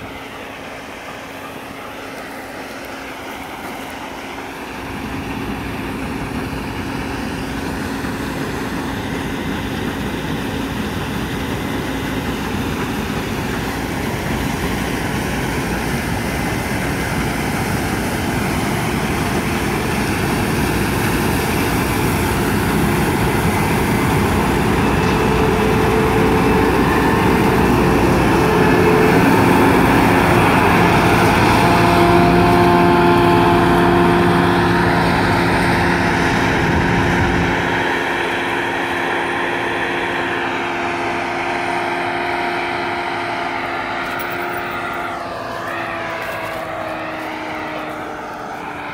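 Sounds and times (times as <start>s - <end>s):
combine harvester running: 0.0s - 48.9s.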